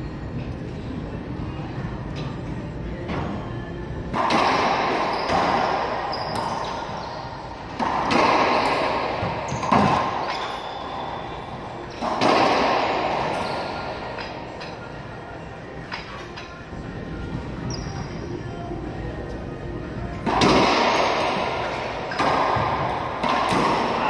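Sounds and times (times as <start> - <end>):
racquetball smacks with echo: 4.1 - 6.8, 7.7 - 10.6, 11.9 - 14.4, 20.2 - 24.0.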